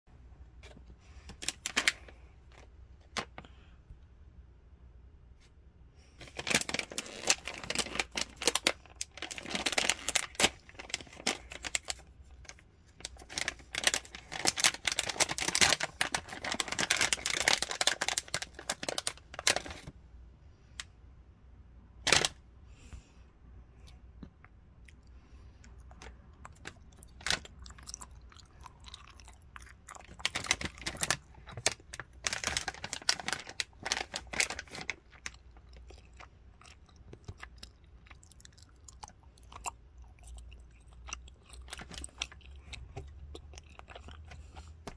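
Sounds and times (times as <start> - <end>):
plastic pouch crinkling: 1.3 - 3.4, 6.2 - 19.9, 22.1 - 22.4, 26.5 - 28.0, 29.6 - 36.3, 41.6 - 42.5.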